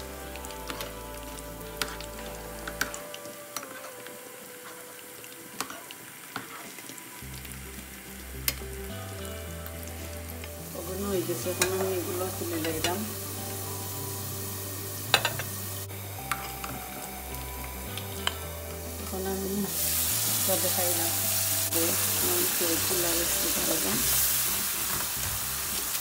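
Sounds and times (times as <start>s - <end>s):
food sizzling in a pan: 0.0s - 26.0s.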